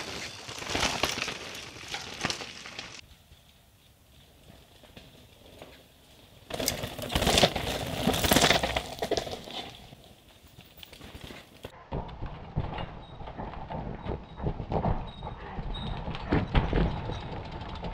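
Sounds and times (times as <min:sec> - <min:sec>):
mountain bike tyres crunching on dirt: 0:00.0 - 0:12.3
bike clattering: 0:00.0 - 0:15.2
bike rattling over rocky ground: 0:00.0 - 0:17.9.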